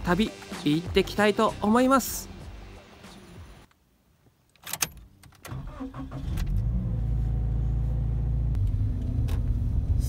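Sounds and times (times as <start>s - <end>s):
car engine starting and idling: 4.7s - 10.0s.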